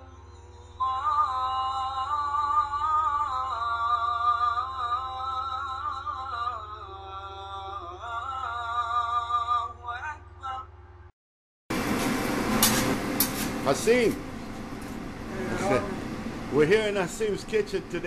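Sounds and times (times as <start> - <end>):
slow sung melody: 0.0 - 10.8
steady low drone: 0.0 - 11.1.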